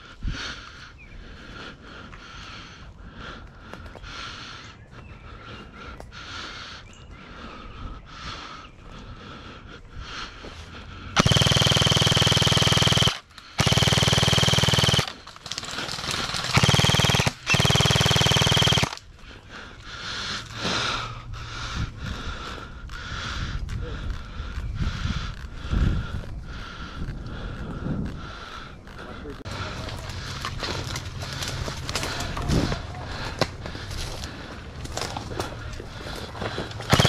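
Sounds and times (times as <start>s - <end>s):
airsoft gun full-auto bursts: 11.2s - 19.0s
footsteps through undergrowth: 29.5s - 36.9s.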